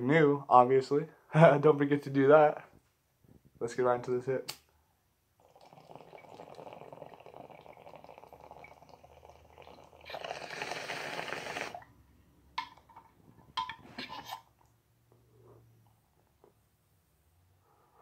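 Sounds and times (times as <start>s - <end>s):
water bubbling in a bong: 5.4s - 11.9s.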